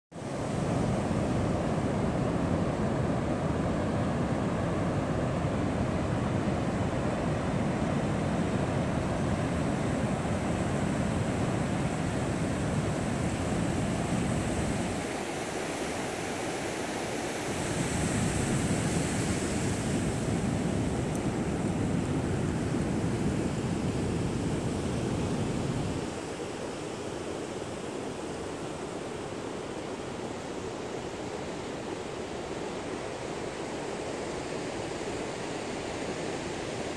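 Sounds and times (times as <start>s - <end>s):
wind rumbling on microphone: 0.2s - 29.5s.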